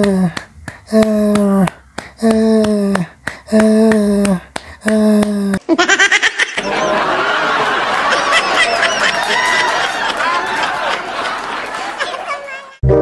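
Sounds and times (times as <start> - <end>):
crowd laughing and chattering: 6.5 - 12.8.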